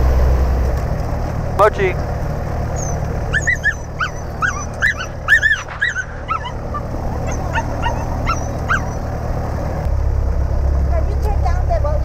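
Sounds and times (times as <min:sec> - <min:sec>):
airplane engine drone: 0:00.0 - 0:12.0
puppy whimpering and yipping: 0:02.8 - 0:09.1.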